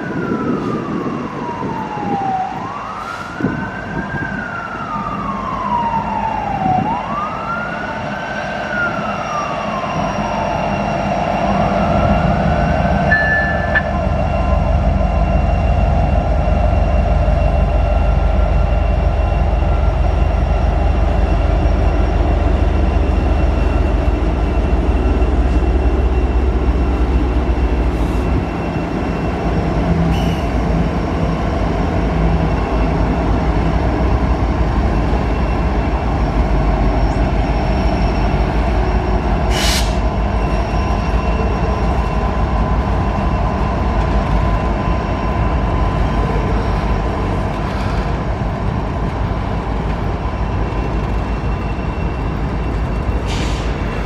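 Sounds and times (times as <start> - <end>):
freight train wheels rumbling: 0.0 - 54.0
high ringing from train wheels: 10.8 - 30.4.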